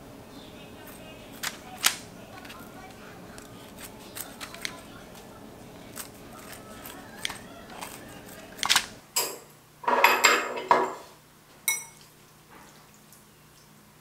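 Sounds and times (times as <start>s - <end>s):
scissors snipping meat: 0.8s - 9.0s
chopsticks clinking against bowl: 5.8s - 9.4s, 11.7s - 12.0s.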